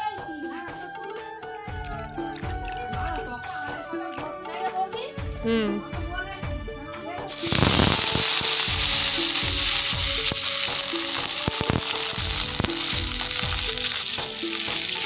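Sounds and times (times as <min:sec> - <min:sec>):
fish sizzling in hot oil: 0:07.3 - 0:15.0
oil popping and clicking: 0:07.3 - 0:15.0.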